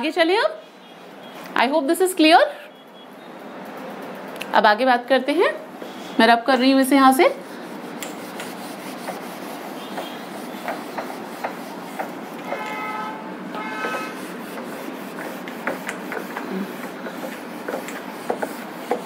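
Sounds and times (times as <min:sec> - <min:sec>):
duster wiping whiteboard: 0:06.9 - 0:19.0.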